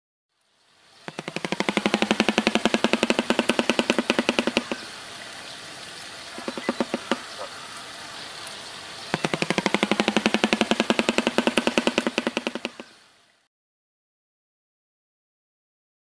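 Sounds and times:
bird clattering its bill: 0:01.1 - 0:04.9, 0:06.4 - 0:07.5, 0:09.2 - 0:12.9.

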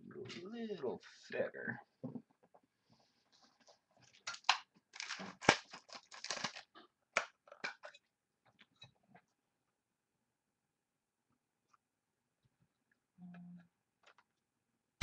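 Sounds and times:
card supplies crinkling and scraping: 0:03.4 - 0:06.7.

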